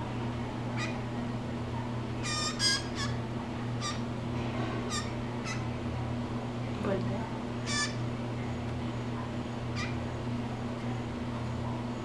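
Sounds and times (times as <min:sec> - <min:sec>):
steady low hum: 0:00.0 - 0:12.0
blue jay calls: 0:00.7 - 0:01.2, 0:02.2 - 0:04.2, 0:04.8 - 0:05.8, 0:07.6 - 0:08.1, 0:09.6 - 0:10.1.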